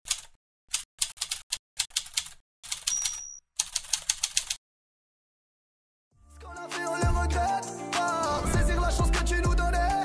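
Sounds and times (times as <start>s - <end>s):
typewriter bell ring: 2.7s - 3.7s.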